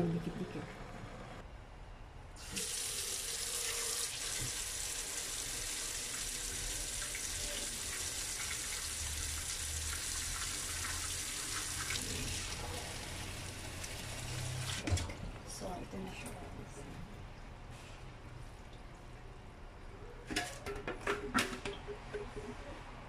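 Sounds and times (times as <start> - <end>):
faucet water splashing into sink: 2.4 - 12.6.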